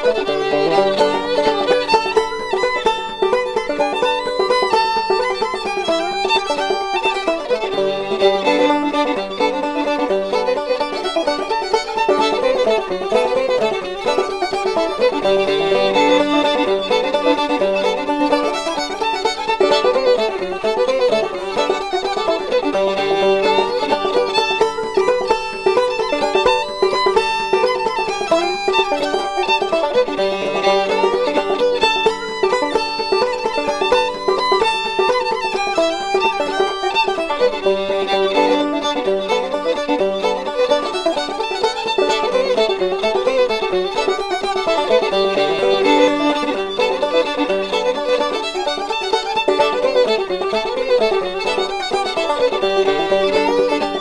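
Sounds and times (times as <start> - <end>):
fiddle music: 0.0 - 54.0.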